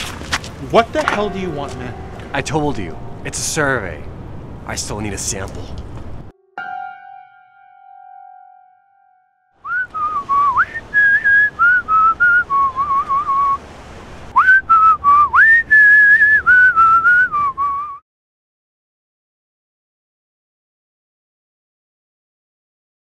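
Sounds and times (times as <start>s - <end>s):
person whistling a tune: 9.6s - 13.6s, 14.4s - 18.0s.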